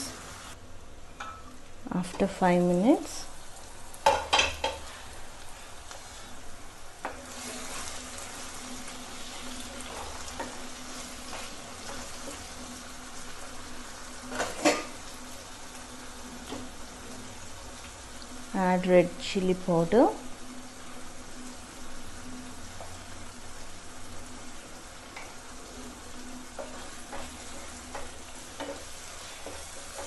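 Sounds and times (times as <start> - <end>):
vegetables sizzling in oil: 0.0 - 30.0
spatula scraping pan: 7.1 - 12.5, 14.3 - 15.0.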